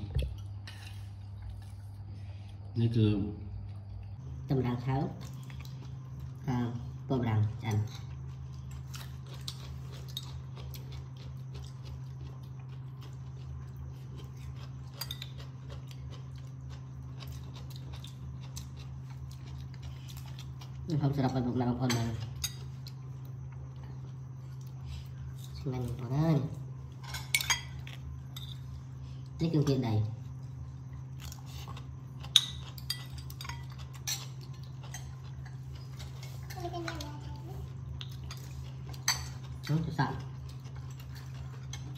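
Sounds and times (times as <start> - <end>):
steady low hum: 0.0 - 41.9
cutlery and dishes clinking: 27.0 - 28.6, 32.2 - 37.0, 38.2 - 39.5
cutlery clinking on dishes: 27.0 - 28.6.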